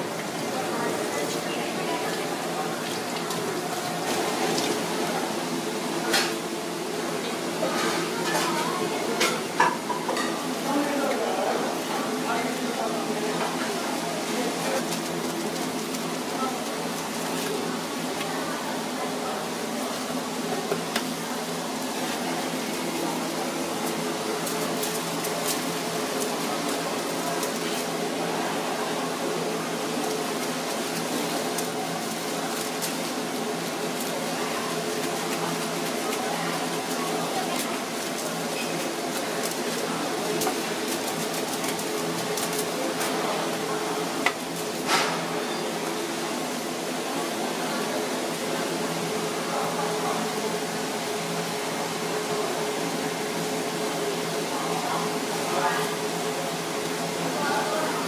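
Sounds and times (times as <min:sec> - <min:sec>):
kitchen mechanical hum: 0:00.0 - 0:58.0
plastic gloves crinkling: 0:14.2 - 0:18.2, 0:21.9 - 0:28.4, 0:29.0 - 0:44.9.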